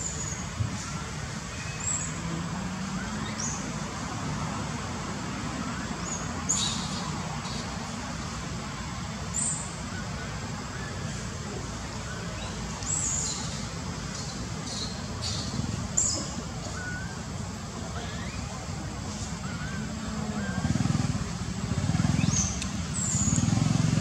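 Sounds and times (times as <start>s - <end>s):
distant road traffic hum: 0.0s - 24.0s.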